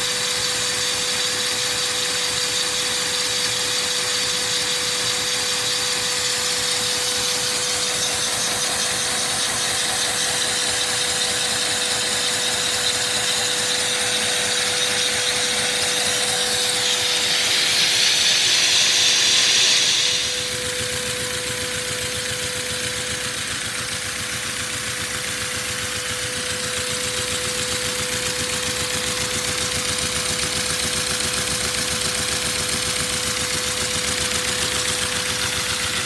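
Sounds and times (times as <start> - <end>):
air rushing through valves: 6.0 - 36.0.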